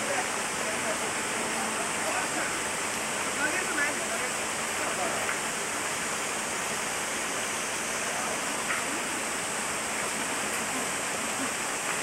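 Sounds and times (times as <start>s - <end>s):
running water rushing: 0.0s - 12.0s.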